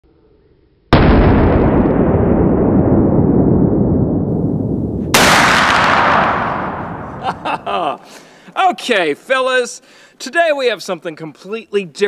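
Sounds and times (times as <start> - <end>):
rifle shots: 5.0 - 7.4.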